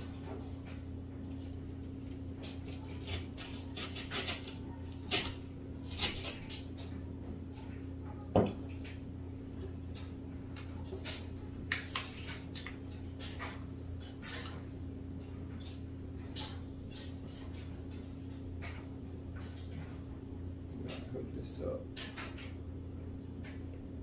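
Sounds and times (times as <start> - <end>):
steady low hum: 0.0 - 24.0
hand tool scraping drywall: 2.7 - 6.4.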